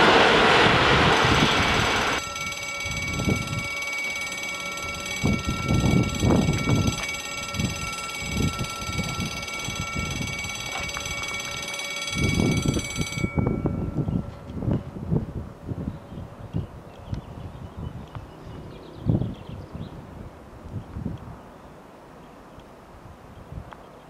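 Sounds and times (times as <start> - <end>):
wind buffeting microphone: 0.0 - 21.5
thin high-pitched whine: 1.1 - 14.8.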